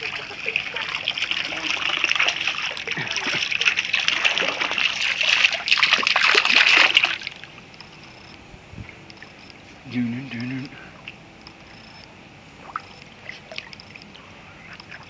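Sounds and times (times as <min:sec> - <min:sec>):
water jet spattering onto pool: 0:00.0 - 0:07.5.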